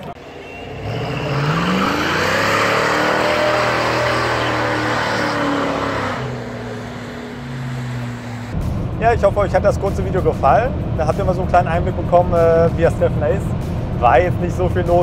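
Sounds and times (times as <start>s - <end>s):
car engine accelerating hard: 0.1s - 8.6s.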